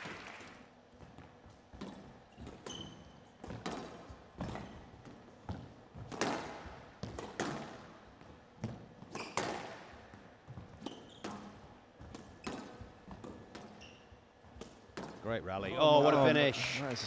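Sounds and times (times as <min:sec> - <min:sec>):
shoes squeaking on court floor: 0:00.0 - 0:15.3
squash ball cracking off rackets: 0:05.5 - 0:07.8, 0:10.8 - 0:13.8.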